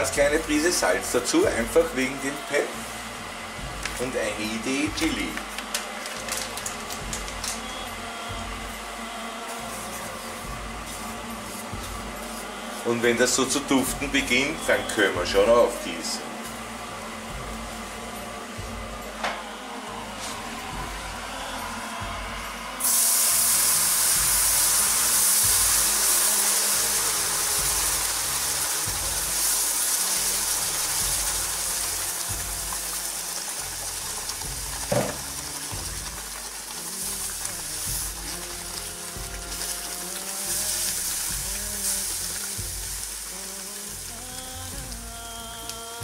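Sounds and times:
loud frying sizzle: 0.0 - 46.0
wooden spatula stirring: 32.4 - 45.6.

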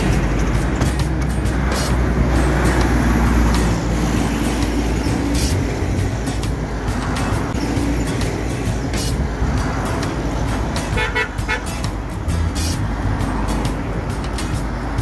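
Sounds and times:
background music: 0.0 - 15.0
heavy trucks driving past: 0.0 - 15.0.

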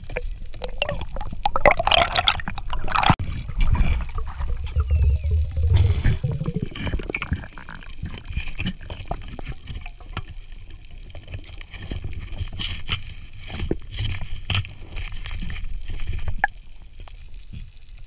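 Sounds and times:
underwater water gurgling: 0.0 - 18.0
low rumble: 3.4 - 7.2.

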